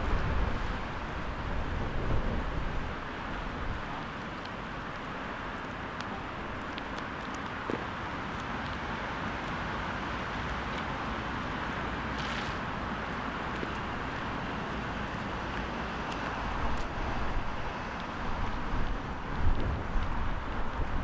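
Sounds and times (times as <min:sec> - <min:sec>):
wind buffeting microphone: 0:00.0 - 0:03.9, 0:16.2 - 0:21.0
outdoor background noise: 0:00.0 - 0:21.0.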